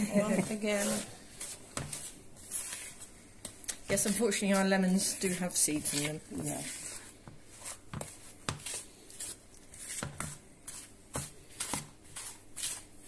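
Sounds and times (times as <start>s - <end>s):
spatula scraping plastic bowl: 3.8s - 12.9s.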